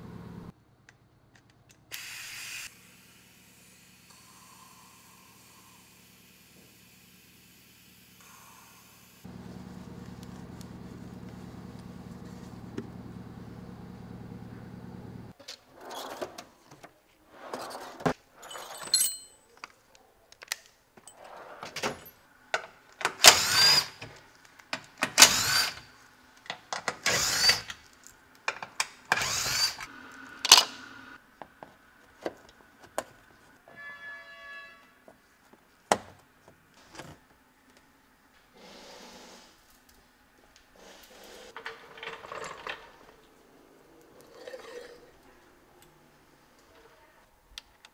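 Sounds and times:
cordless power tool bursts: 23.2 - 24.0, 25.2 - 25.8, 27.0 - 27.7, 29.1 - 29.9.

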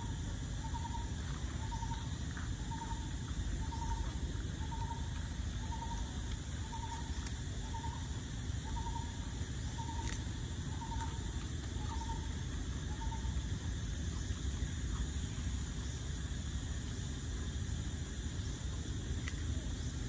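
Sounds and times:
animal trilled calls: 0.0 - 15.2
low background rumble: 0.0 - 20.0.

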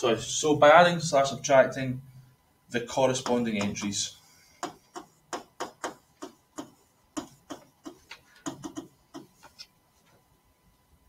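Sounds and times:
stylus tapping clicks: 4.6 - 9.3.

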